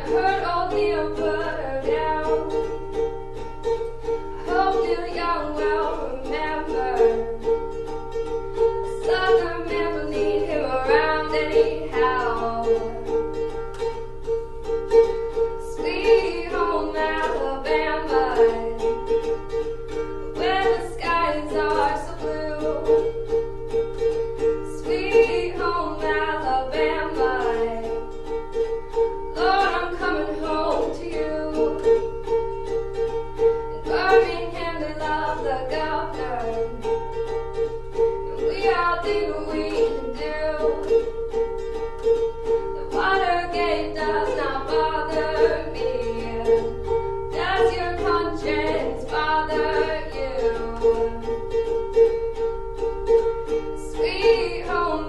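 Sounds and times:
woman singing: 0.0s - 2.8s, 4.4s - 7.6s, 8.8s - 13.2s, 15.3s - 19.0s, 19.9s - 23.1s, 24.4s - 28.1s, 29.3s - 32.1s, 33.6s - 37.0s, 38.2s - 41.1s, 42.6s - 51.7s, 53.5s - 55.0s
ukulele strumming: 0.0s - 55.0s.

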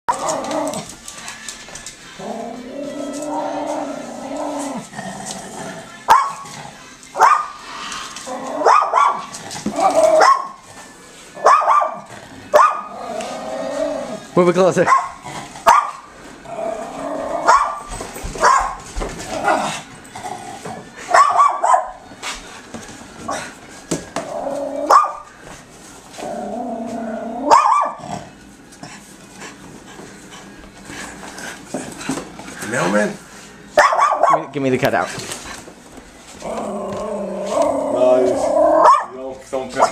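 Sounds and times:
small dog growling: 2.2s - 6.9s, 12.1s - 14.3s, 26.2s - 28.4s, 36.4s - 38.9s
dog barking: 6.1s - 6.4s, 7.2s - 7.5s, 8.6s - 9.3s, 10.2s - 10.6s, 11.4s - 12.9s, 14.8s - 16.0s, 17.5s - 18.8s, 21.1s - 22.0s, 24.9s - 25.2s, 27.5s - 28.0s, 33.8s - 34.5s, 38.8s - 39.2s
small dog barking sharply: 33.8s - 34.4s.

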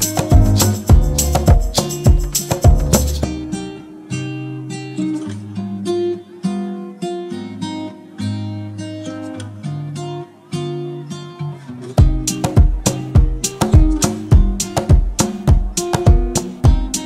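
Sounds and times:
acoustic guitar plucking: 0.0s - 17.0s.

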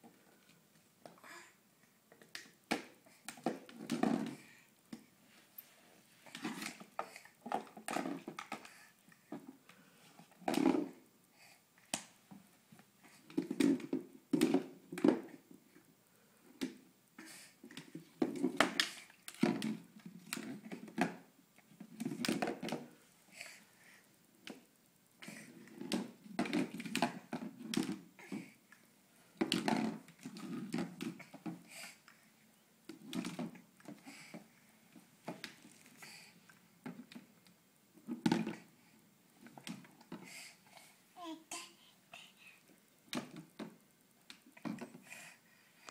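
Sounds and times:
plastic cup rolling on floor: 17.8s - 21.2s.

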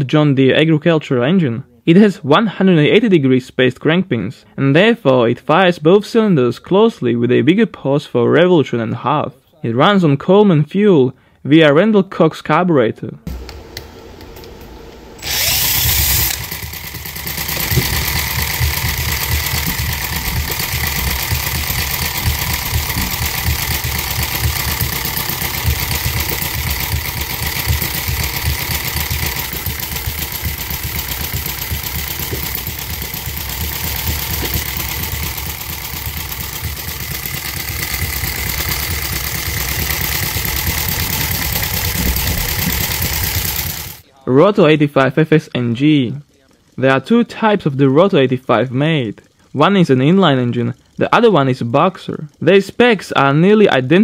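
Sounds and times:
cordless drill whine: 15.1s - 44.0s
model engine running unevenly: 15.2s - 44.0s.

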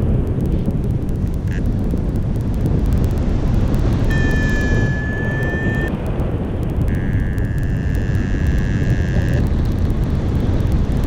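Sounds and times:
wind rushing over microphone: 0.0s - 11.0s
high electronic tone: 4.0s - 5.9s, 6.9s - 9.5s.

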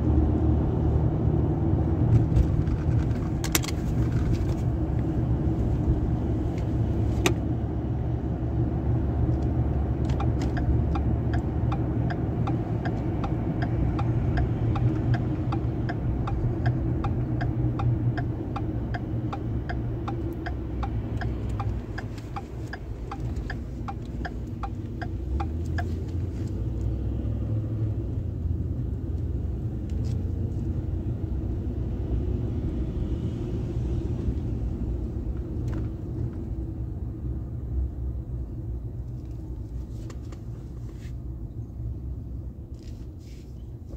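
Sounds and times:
car road rumble: 0.0s - 43.9s
turn signal ticking: 2.0s - 30.1s.

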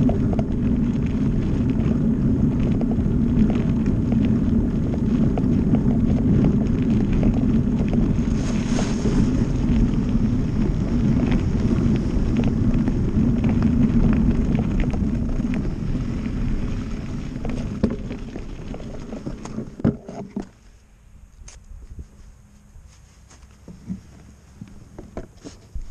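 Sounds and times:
wind buffeting microphone: 0.0s - 20.4s
bike rattles and knocks: 0.0s - 20.6s, 23.3s - 25.9s
bike tyre rumble: 0.0s - 25.9s.

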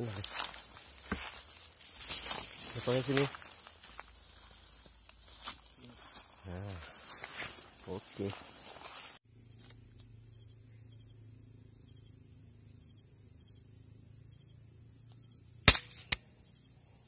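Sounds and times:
air rifle shot: 15.7s - 16.2s.

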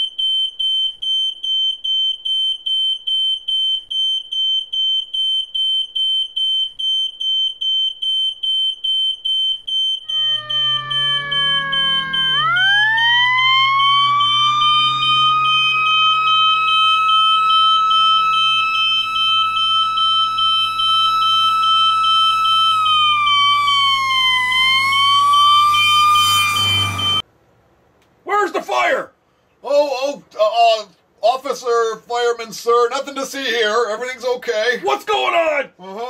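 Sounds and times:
smoke alarm beeping: 0.0s - 27.2s
fire engine siren wailing: 10.0s - 27.2s.

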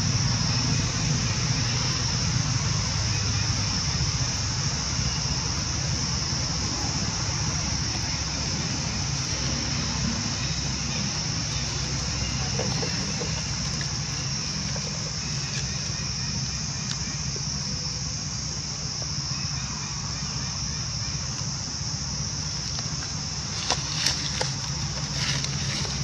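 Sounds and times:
low rumble: 0.0s - 18.7s
high-pitched insect drone: 0.0s - 26.0s.

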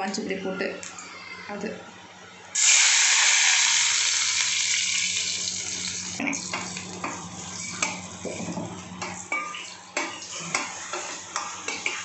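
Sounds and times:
loud sizzling hiss in oil: 2.6s - 6.0s.

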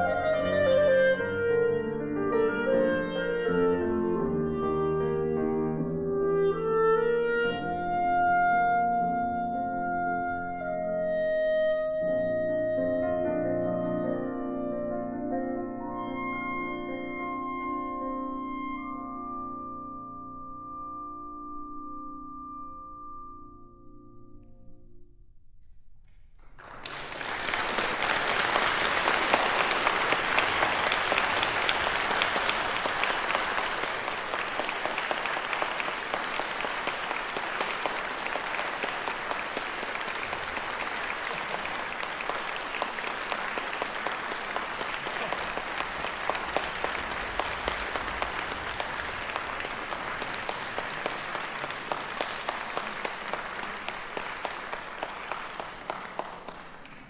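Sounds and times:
audience applauding: 26.5s - 57.0s.

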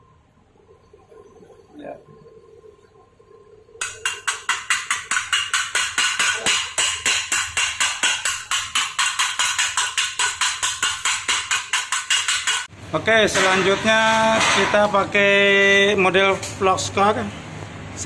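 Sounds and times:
steel knocking on steel block: 3.8s - 12.7s, 13.3s - 15.0s.

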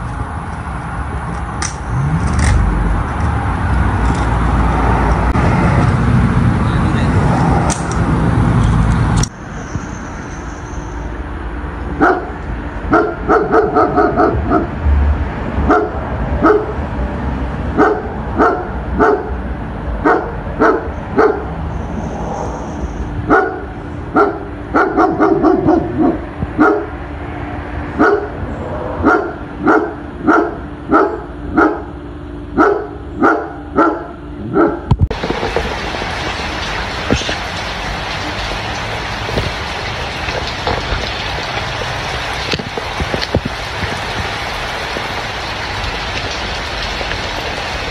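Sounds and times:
loud wind-like noise: 0.0s - 32.6s, 33.5s - 47.9s
dog barking: 12.0s - 14.8s, 15.7s - 16.8s, 17.8s - 19.4s, 20.0s - 21.6s, 23.3s - 27.0s, 28.0s - 28.4s, 29.0s - 32.0s, 32.6s - 34.9s.

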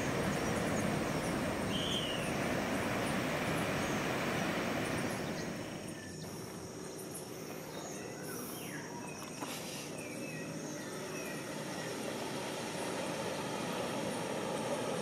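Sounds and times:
high insect drone: 0.0s - 15.0s.

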